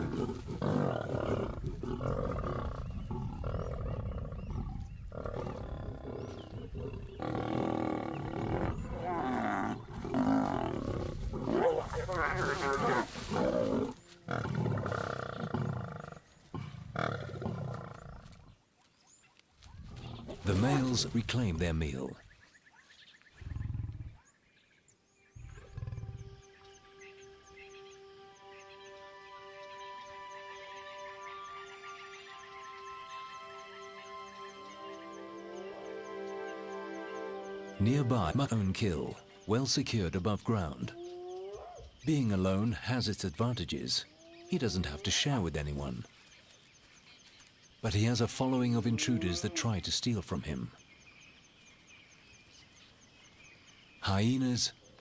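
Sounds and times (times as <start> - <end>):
lions snarling and growling: 0.0 - 18.5, 23.4 - 24.4, 25.4 - 26.5
soft music with held notes: 25.8 - 40.0.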